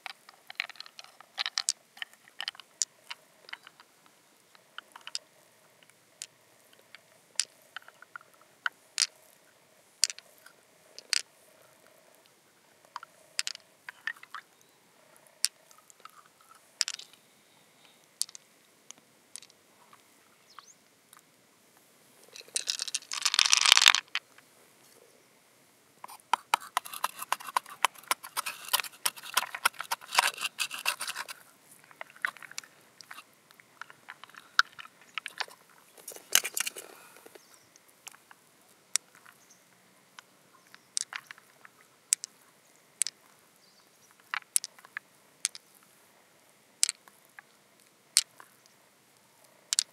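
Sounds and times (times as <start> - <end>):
pearls clicking together: 0.0 - 3.9, 4.8 - 8.2, 9.0 - 9.2, 10.0 - 10.2, 11.0 - 11.3, 12.9 - 14.4, 15.4 - 17.2, 18.2 - 19.6, 22.4 - 24.2, 26.1 - 37.4, 41.0 - 42.4, 43.0 - 43.2, 44.2 - 45.7, 46.8 - 47.5, 48.2 - 48.7
shell crackling and scraping: 0.0 - 3.9, 4.5 - 9.3, 10.0 - 12.2, 12.8 - 14.5, 15.4 - 17.2, 17.8 - 20.0, 22.2 - 24.2, 26.0 - 39.4, 44.1 - 45.9.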